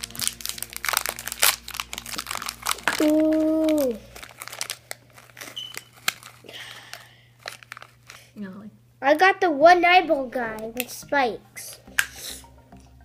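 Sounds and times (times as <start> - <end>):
plastic capsule rattling: 0.0 - 8.2
foil wrapper crinkling and tearing: 0.0 - 8.4.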